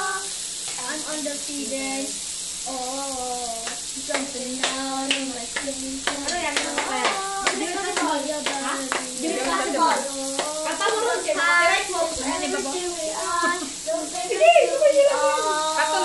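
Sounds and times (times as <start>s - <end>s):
meat sizzling on a grill: 0.0s - 16.0s
voices singing: 0.0s - 16.0s
hand claps: 3.6s - 9.7s, 10.3s - 11.1s.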